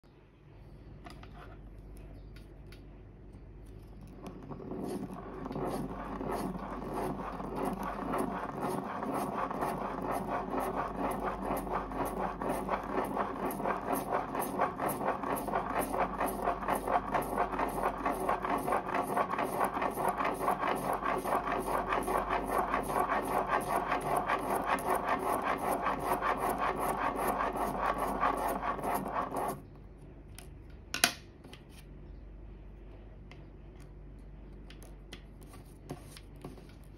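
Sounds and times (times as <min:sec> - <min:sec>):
pen scratching on paper: 0:04.4 - 0:29.6.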